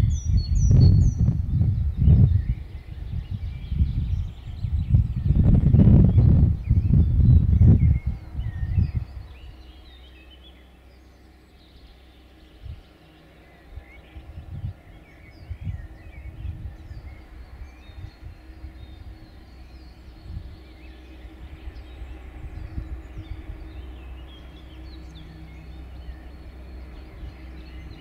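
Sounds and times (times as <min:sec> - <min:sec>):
wind thumps on microphone: 0:00.0 - 0:09.3
birds chirping and singing: 0:00.0 - 0:28.0
faint low hum: 0:00.0 - 0:28.0.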